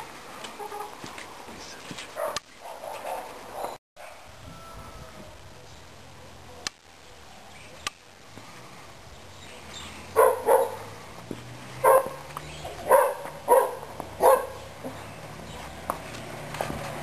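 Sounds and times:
dog barking: 0:02.2 - 0:04.3, 0:10.2 - 0:10.9, 0:11.8 - 0:12.2, 0:12.8 - 0:14.6.

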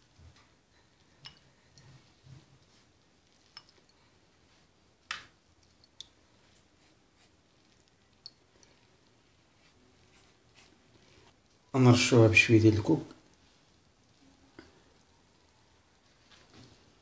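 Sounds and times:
brush tapping bowl: 0:01.1 - 0:11.4.

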